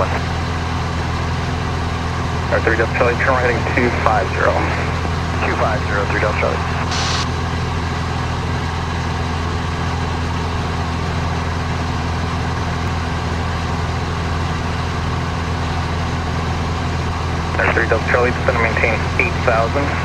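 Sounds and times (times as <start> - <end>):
plane engine droning: 0.0 - 20.0
steady hiss: 6.9 - 7.3.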